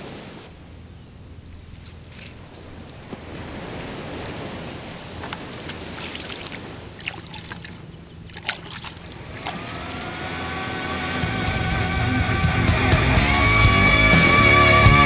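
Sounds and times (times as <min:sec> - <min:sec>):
surf and wind: 0:00.0 - 0:13.7
music: 0:09.8 - 0:15.0.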